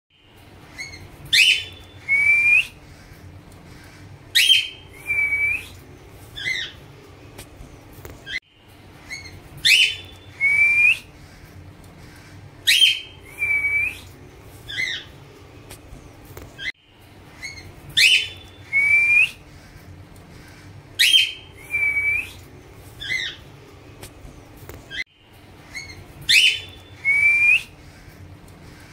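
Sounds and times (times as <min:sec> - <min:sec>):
cockatiels chirping and whistling: 0:00.8 - 0:02.8, 0:04.4 - 0:05.7, 0:06.4 - 0:06.8, 0:09.1 - 0:11.0, 0:12.7 - 0:14.0, 0:14.7 - 0:15.1, 0:17.4 - 0:19.4, 0:21.0 - 0:22.4, 0:23.0 - 0:23.4, 0:25.7 - 0:27.7.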